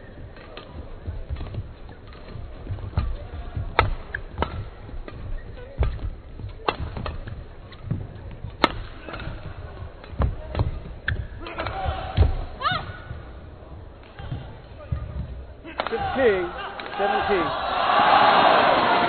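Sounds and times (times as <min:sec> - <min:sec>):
rackets striking shuttlecock: 0:00.3 - 0:13.3.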